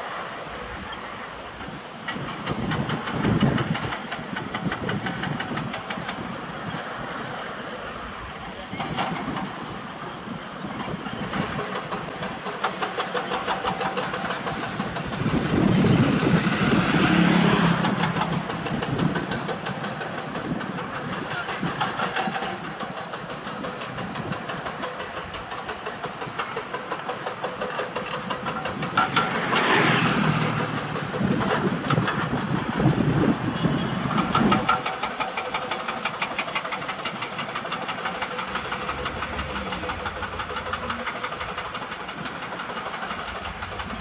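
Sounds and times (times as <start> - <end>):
excavator diesel engines: 0.0 - 44.0.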